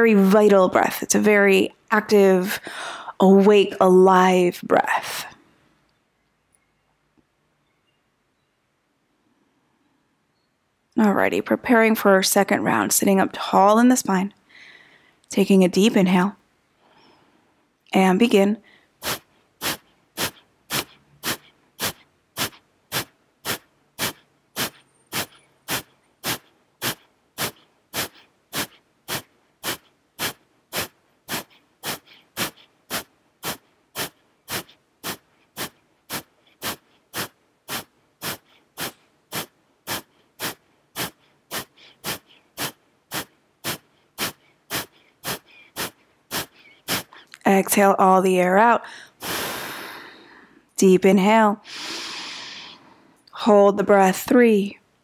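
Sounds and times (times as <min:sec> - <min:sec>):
quiet inhales: 0:02.6 - 0:03.2, 0:14.4 - 0:15.3, 0:16.8 - 0:17.6, 0:18.6 - 0:47.4, 0:48.8 - 0:50.7, 0:51.6 - 0:53.3
woman forcefully exhaling through nose: 0:19.0 - 0:47.2, 0:48.9 - 0:50.6, 0:51.6 - 0:53.0.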